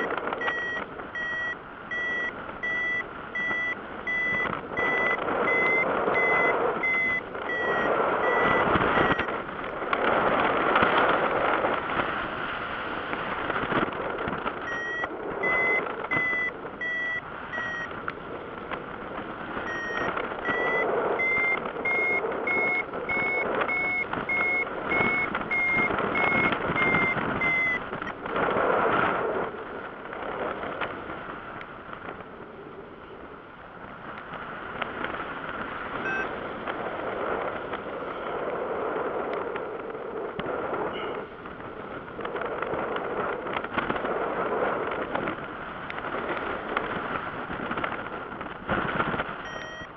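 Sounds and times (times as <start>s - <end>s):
variometer short beeps: 0.0s - 9.3s, 14.6s - 17.9s, 19.6s - 28.2s, 36.0s - 36.3s, 49.4s - 49.9s
wind over microphone: 0.0s - 49.9s.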